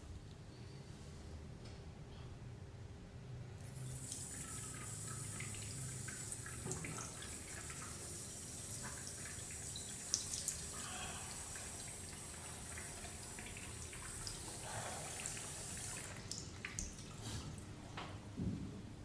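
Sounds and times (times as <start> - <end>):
tap water running into sink: 3.8 - 17.2.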